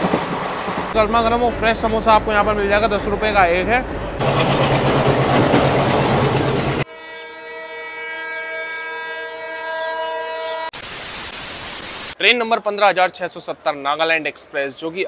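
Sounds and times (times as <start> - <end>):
train rumbling: 0.0 - 6.9
locomotive horn blast: 6.8 - 10.7.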